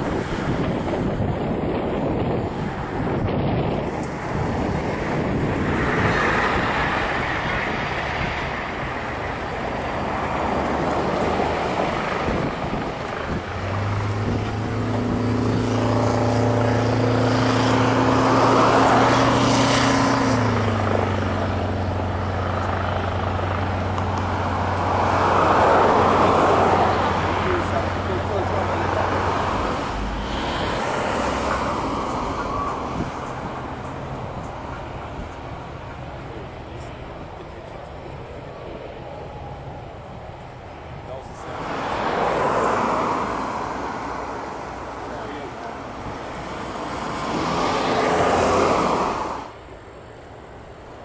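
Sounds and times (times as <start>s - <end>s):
rough rumble: 0.0s - 44.4s
wind buffeting microphone: 0.0s - 45.0s
truck engine humming: 0.0s - 51.0s.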